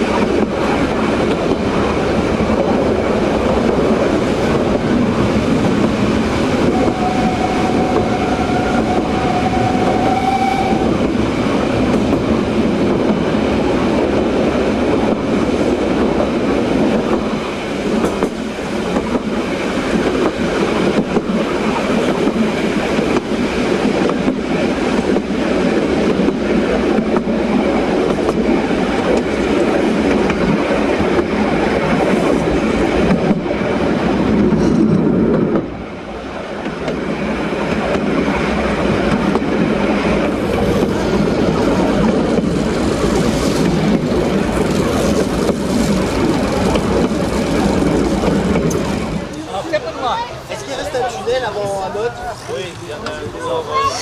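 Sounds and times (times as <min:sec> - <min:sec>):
steam train rumbling: 0:00.0 - 0:54.0
wheels clattering over rail joints: 0:37.7 - 0:50.0.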